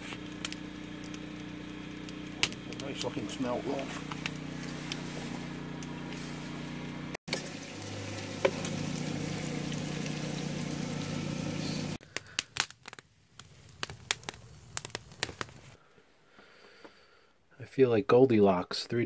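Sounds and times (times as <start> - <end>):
fish sizzling in hot oil: 0.0 - 12.0
campfire crackling and popping: 0.0 - 15.8.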